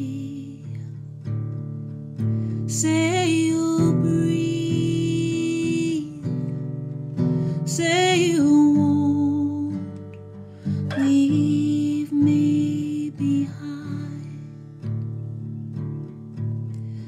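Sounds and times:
woman singing: 0.0 - 1.1, 2.6 - 14.6
acoustic guitar strummed chords: 8.3 - 12.8.

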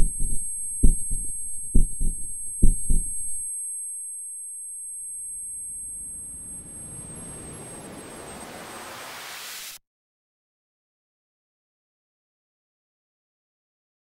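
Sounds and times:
thin high-pitched ringing tones: 0.0 - 9.0
rushing noise swell: 6.6 - 9.8.

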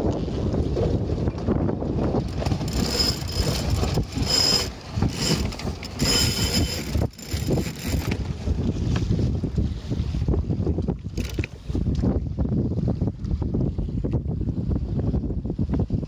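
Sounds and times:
wind noise on microphone: 0.0 - 16.0
winch ratcheting: 2.4 - 8.3, 11.2 - 11.5.

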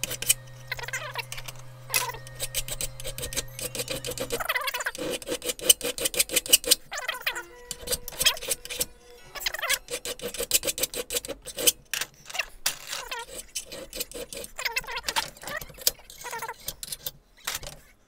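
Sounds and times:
metal knife clinking in vise: 0.0 - 11.8
file scraping on steel knife: 0.0 - 11.9, 13.0 - 17.2.

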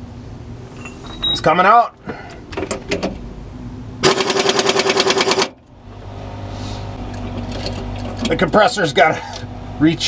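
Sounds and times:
pneumatic impact wrench hammering: 4.0 - 5.6
air compressor humming: 4.0 - 7.4.

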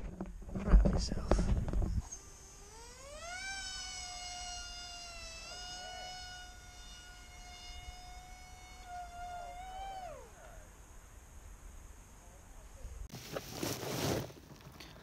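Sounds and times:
small electric motor and propeller whine: 1.3 - 11.0.

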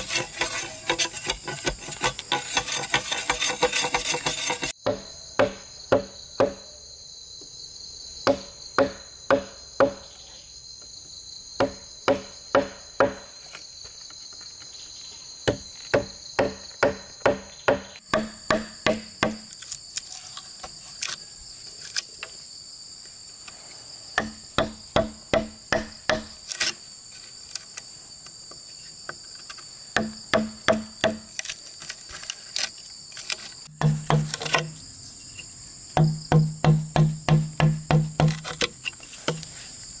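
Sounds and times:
insects droning: 0.0 - 40.0
mallet knocking blade into bamboo: 33.7 - 34.8, 36.0 - 38.7.

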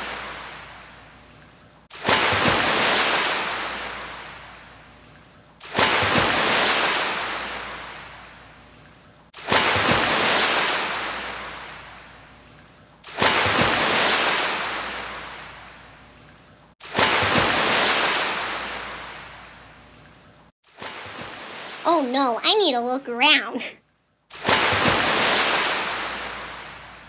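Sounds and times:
ocean waves washing in: 0.0 - 0.9, 1.9 - 4.8, 5.6 - 8.4, 9.4 - 12.2, 13.1 - 16.0, 16.8 - 20.0, 20.7 - 23.7, 24.3 - 27.0.

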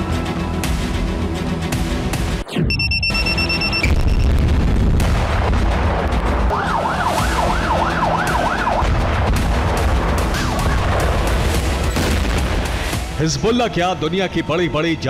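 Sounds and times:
emergency siren wailing: 6.4 - 9.0.

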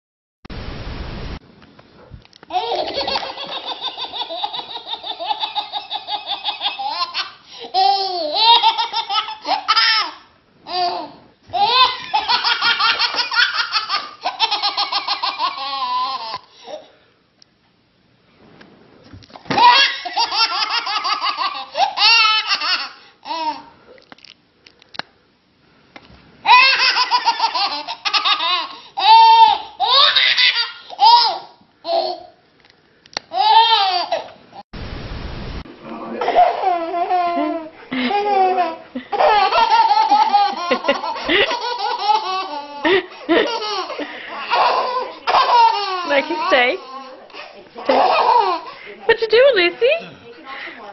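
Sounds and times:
baby laughing: 2.5 - 16.8, 19.5 - 23.7, 26.4 - 32.3, 33.3 - 34.4, 36.1 - 48.8.

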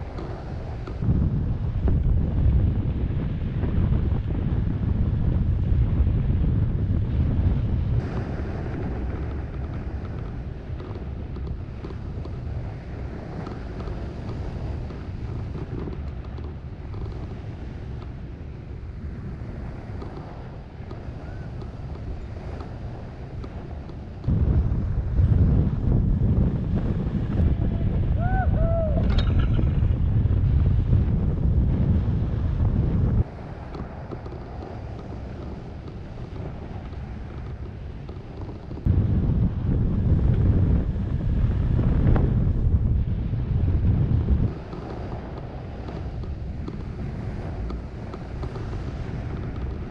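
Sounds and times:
wind buffeting microphone: 0.0 - 49.9
faint ticks: 9.2 - 12.4, 13.4 - 17.4, 19.9 - 21.0, 23.4 - 24.4, 33.6 - 38.9, 44.5 - 49.9.

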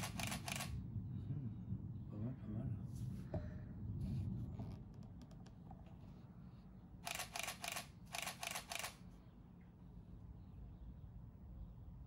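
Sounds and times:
camera shutter clicks: 0.0 - 0.7, 7.1 - 9.0.

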